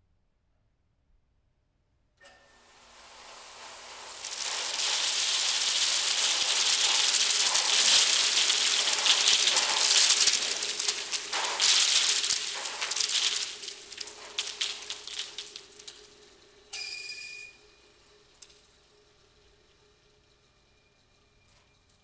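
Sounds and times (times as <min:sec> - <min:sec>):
corn kernels flung onto floor: 0:03.1 - 0:16.1.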